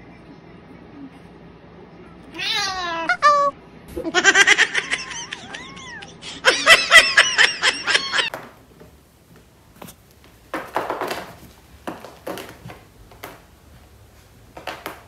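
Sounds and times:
person laughing: 4.0s - 8.3s.

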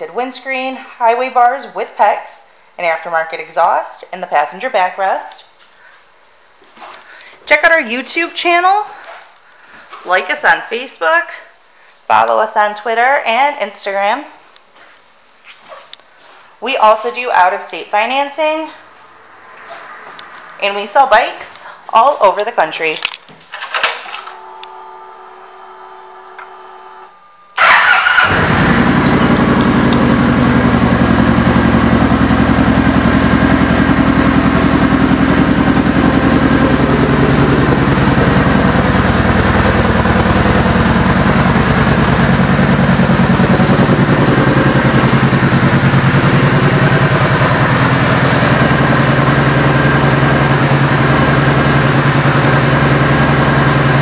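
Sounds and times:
motorcycle engine starting and idling: 23.5s - 54.0s.

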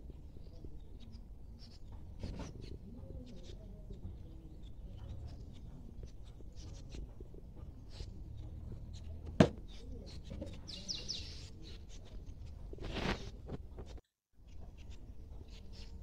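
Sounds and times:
birds chirping: 0.0s - 13.4s.

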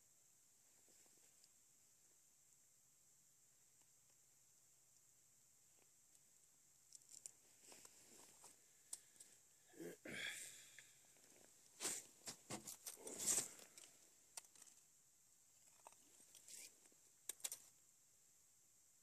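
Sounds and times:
winter suit rustling: 7.4s - 8.9s, 10.5s - 14.0s.

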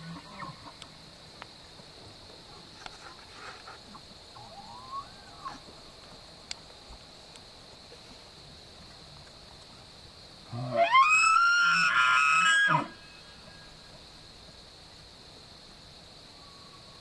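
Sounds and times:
steady high hiss: 0.0s - 17.0s
distant elk bugling: 4.3s - 5.6s.

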